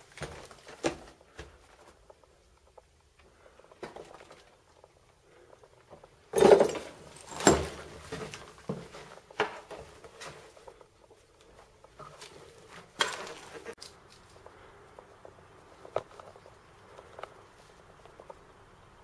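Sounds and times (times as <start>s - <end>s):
footsteps on rubble: 0.0s - 14.5s.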